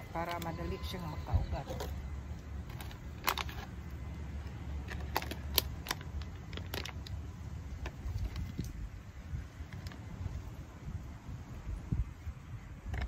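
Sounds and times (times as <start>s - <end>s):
low steady rumble: 0.0s - 13.0s
plastic bottle crackling: 1.6s - 8.8s.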